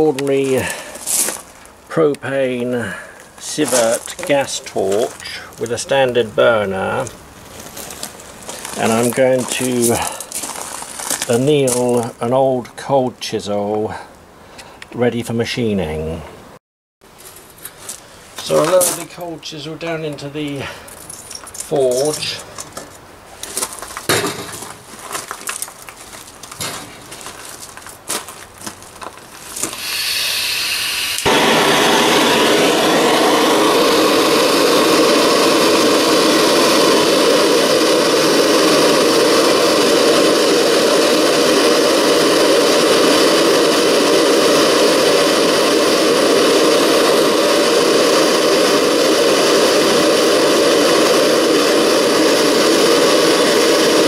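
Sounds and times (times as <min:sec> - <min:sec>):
propane hissing from gas torch: 0:00.0 - 0:01.5, 0:02.3 - 0:07.3, 0:08.0 - 0:12.1, 0:29.4 - 0:54.0
gas torch burning loudly: 0:00.0 - 0:12.4, 0:18.4 - 0:20.7, 0:29.4 - 0:54.0
light clinks and knocks: 0:20.9 - 0:22.9.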